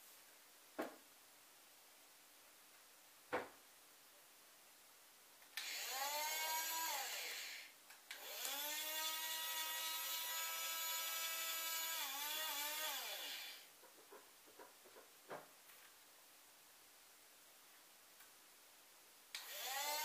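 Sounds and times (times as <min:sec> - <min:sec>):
toy electric motor whining: 0:05.6 - 0:13.7, 0:19.4 - 0:20.0.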